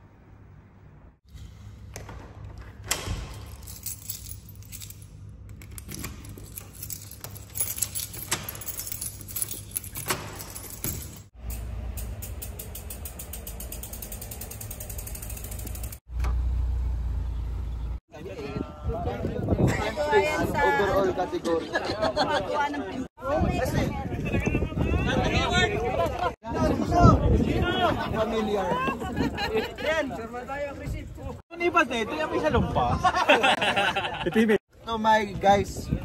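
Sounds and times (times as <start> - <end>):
key working a door lock: 2.8 - 11.3
keys jangling: 2.9 - 16.0.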